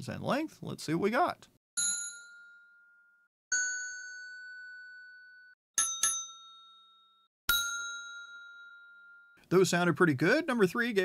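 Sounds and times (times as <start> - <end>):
desk bell dings: 1.8 - 9.4.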